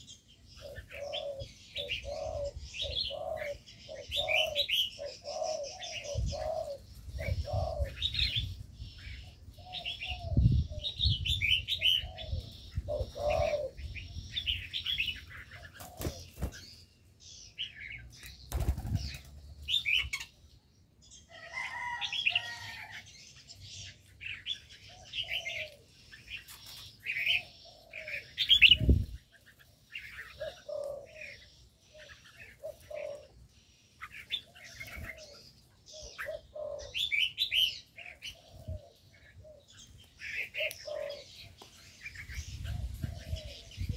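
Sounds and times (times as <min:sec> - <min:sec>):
songbirds chirping: 0:00.0 - 0:43.9
doves cooing: 0:00.6 - 0:16.6, 0:24.3 - 0:43.9
wing flutters: 0:18.5 - 0:19.4.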